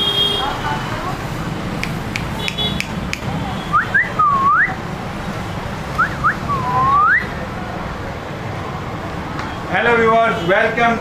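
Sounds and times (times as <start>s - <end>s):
person whistling: 3.7s - 4.8s, 6.0s - 7.3s.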